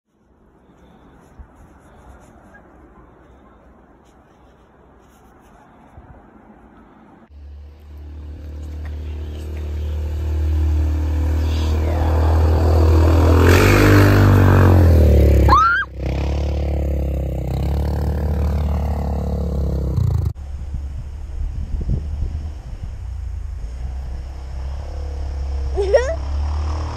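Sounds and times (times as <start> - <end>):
quad engine revving: 7.4 - 20.4, 21.5 - 26.9.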